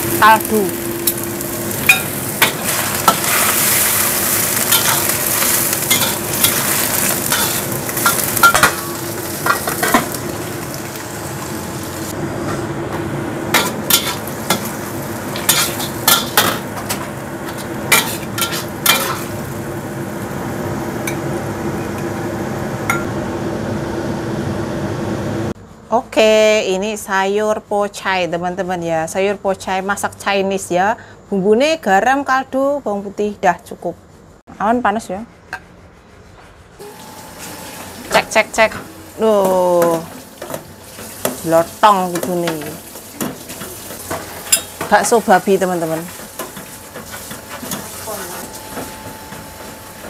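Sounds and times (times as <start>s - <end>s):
greens sizzling in a pan: 0.0s - 12.1s, 13.5s - 20.4s, 36.8s - 50.0s
utensil scraping a pan: 39.4s - 50.0s.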